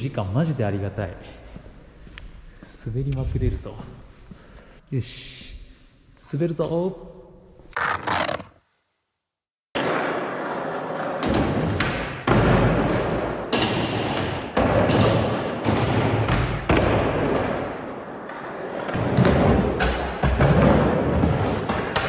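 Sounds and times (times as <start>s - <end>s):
skateboard wheels rolling: 7.8s - 8.5s, 9.8s - 11.9s
skateboard thuds and clacks: 10.9s - 17.8s, 18.9s - 22.0s.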